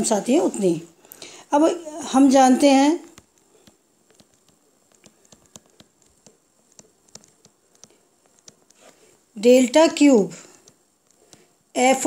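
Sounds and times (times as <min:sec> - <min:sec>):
stylus tapping on touchscreen: 0:03.0 - 0:09.0, 0:10.6 - 0:11.5.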